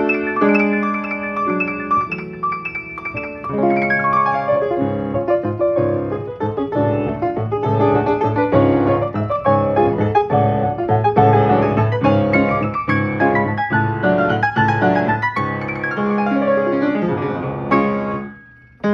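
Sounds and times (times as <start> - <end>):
player piano playing chords: 0.0 - 18.9.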